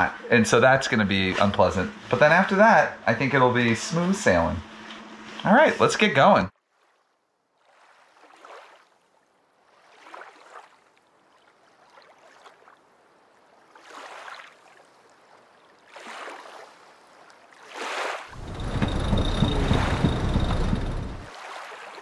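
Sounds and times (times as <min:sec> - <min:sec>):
water washing along a hull: 0:15.8 - 0:22.0.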